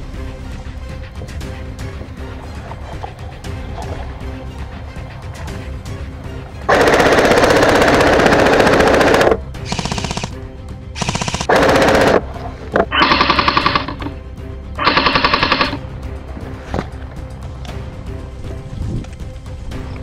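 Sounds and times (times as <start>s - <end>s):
airsoft rifle firing bursts: 6.7s - 10.4s, 11.0s - 12.3s, 12.9s - 14.1s, 14.8s - 15.8s.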